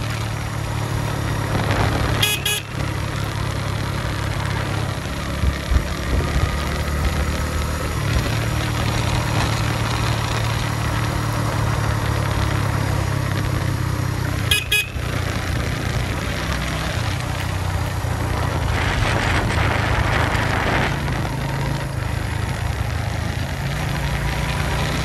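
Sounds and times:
motorcycle engine running: 0:00.0 - 0:25.0
horn double toot: 0:02.1 - 0:02.8, 0:14.5 - 0:15.0.

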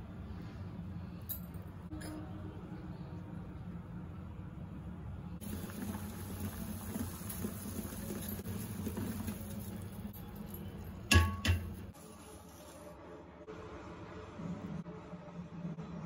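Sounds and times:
water bubbling in a pot: 0:05.4 - 0:10.0.

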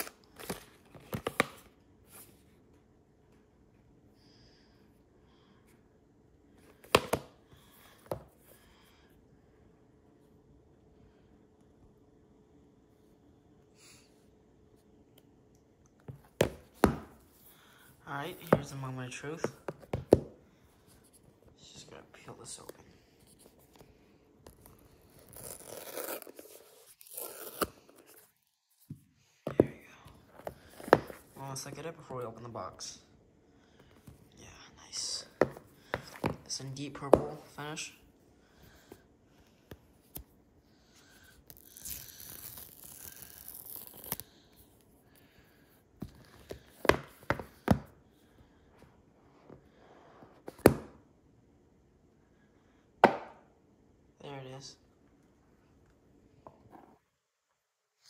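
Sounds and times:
paper tab tearing: 0:25.2 - 0:27.9.

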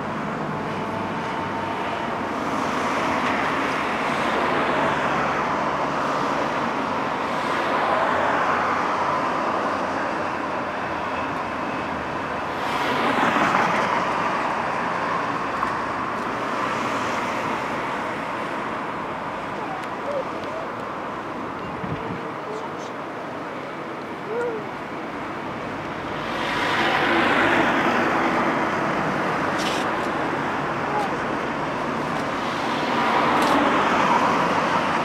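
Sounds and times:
vehicles passing on motorway: 0:00.0 - 0:35.0.

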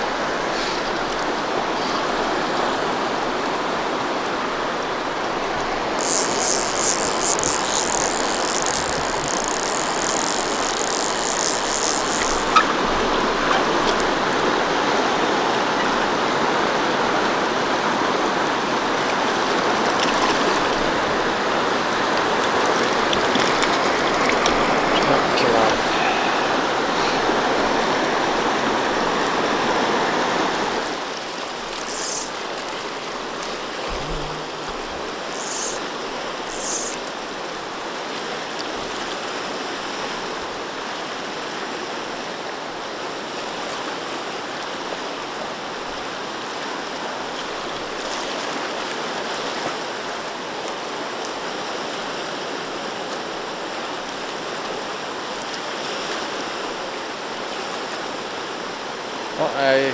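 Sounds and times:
river rushing over rocks: 0:07.8 - 0:36.5.

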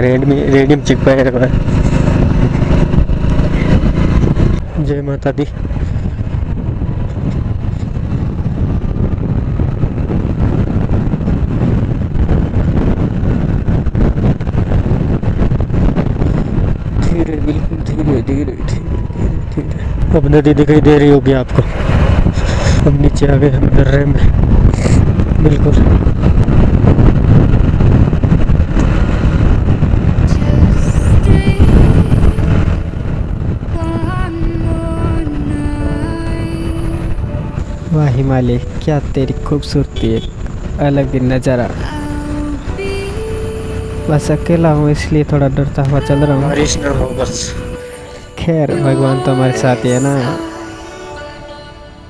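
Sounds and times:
motorcycle engine running: 0:00.0 - 0:48.4
wind buffeting microphone: 0:00.0 - 0:52.0
faint background music: 0:34.0 - 0:52.0.

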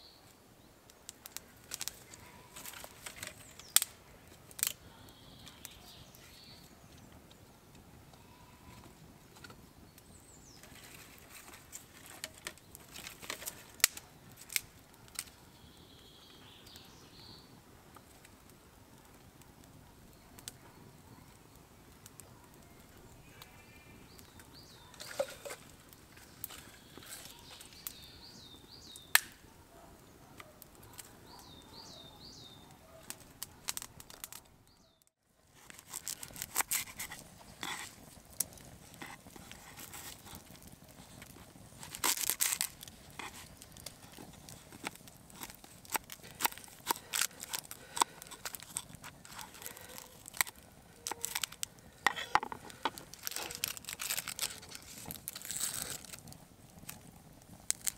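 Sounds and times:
campfire crackling: 0:00.0 - 0:57.9
bird chirping: 0:04.8 - 0:07.2, 0:15.4 - 0:17.5, 0:22.7 - 0:25.6, 0:26.2 - 0:29.8, 0:31.0 - 0:33.1
onion being peeled: 0:35.5 - 0:57.1.

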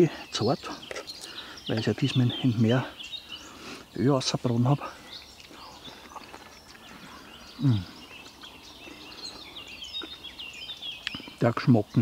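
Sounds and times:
small birds chirping: 0:00.0 - 0:12.0
man humming: 0:07.6 - 0:08.0.

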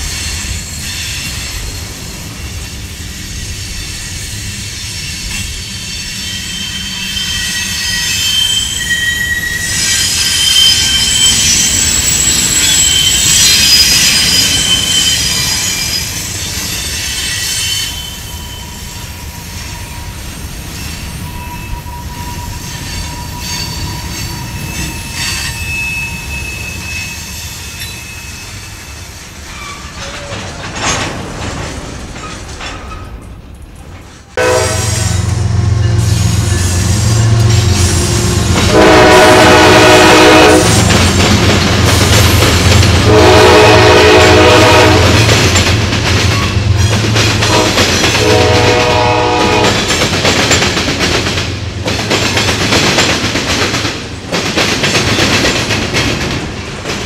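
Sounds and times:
train wheels squealing on rail: 0:00.0 - 0:31.1, 0:34.1 - 0:56.6
train trucks rumbling: 0:00.0 - 0:57.0.

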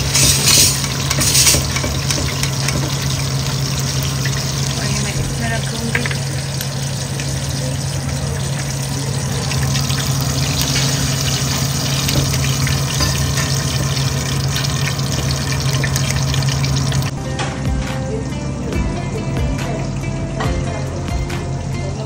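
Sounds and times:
chicken deep-frying in oil: 0:00.0 - 0:17.2.

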